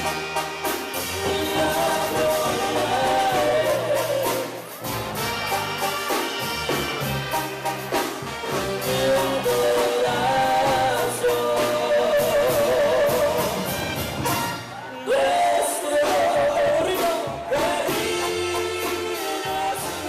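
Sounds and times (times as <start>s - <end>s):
brass band playing: 0.0s - 20.0s
man singing: 1.0s - 4.7s, 8.7s - 13.7s, 14.9s - 20.0s.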